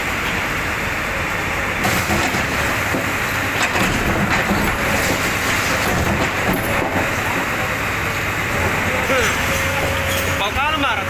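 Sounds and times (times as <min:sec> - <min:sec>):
excavator diesel engine under load: 0:00.0 - 0:11.0
masonry breaking and falling: 0:01.8 - 0:07.8.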